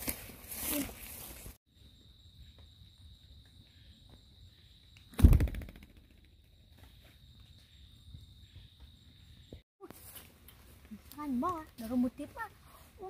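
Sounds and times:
high insect trill: 0.8 - 5.2, 5.9 - 9.6.

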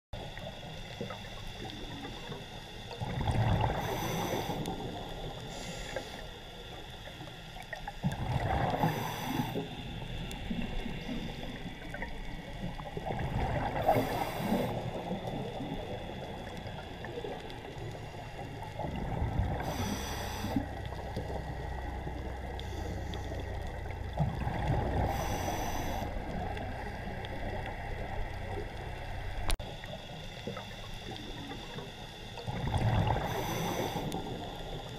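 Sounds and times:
exhaled bubbles gurgling: 0.2 - 34.9
regulator hiss: 3.6 - 7.7, 8.8 - 12.9, 13.8 - 18.7, 19.6 - 21.5, 25.1 - 27.6, 33.1 - 34.9.

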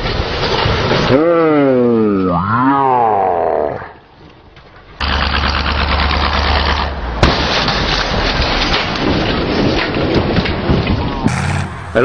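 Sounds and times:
scattered crackles: 0.0 - 2.4.

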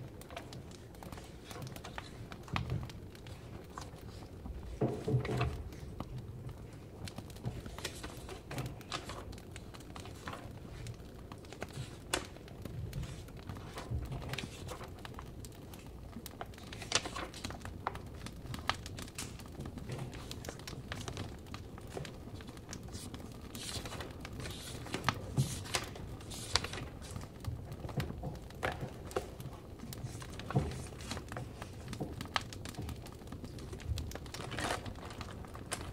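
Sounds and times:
firewood crackling and popping: 0.0 - 35.9.

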